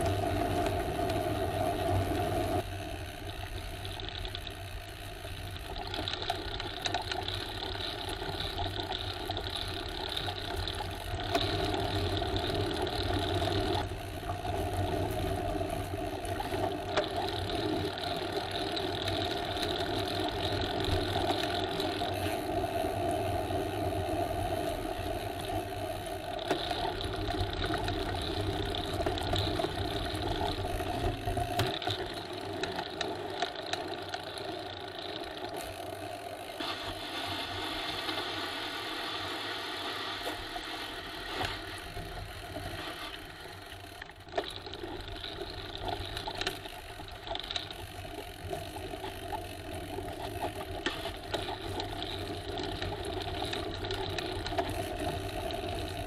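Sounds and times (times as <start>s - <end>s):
bicycle tyres rolling: 0.0s - 56.0s
low hum: 0.0s - 56.0s.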